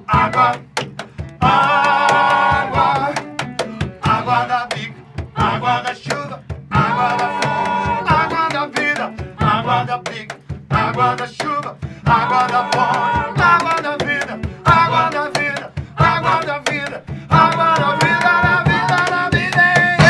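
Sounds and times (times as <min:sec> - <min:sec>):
snare drum: 0:00.2 - 0:20.0
voices singing long notes: 0:01.4 - 0:06.0, 0:06.7 - 0:10.0, 0:12.0 - 0:15.3, 0:17.3 - 0:20.0.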